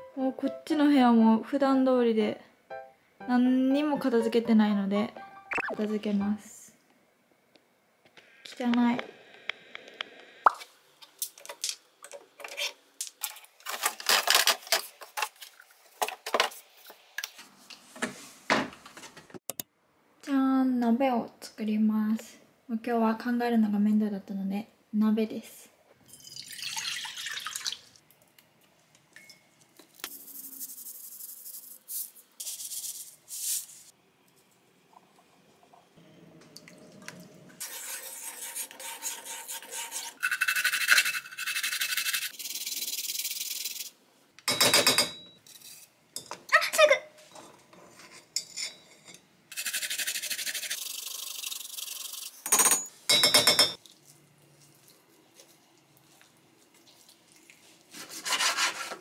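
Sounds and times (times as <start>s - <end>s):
water pouring into pot: 26.2s - 28.0s.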